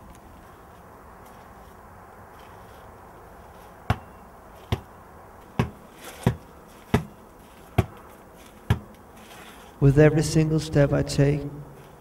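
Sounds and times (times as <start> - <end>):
basketball bouncing on hard ground: 3.8 - 9.0.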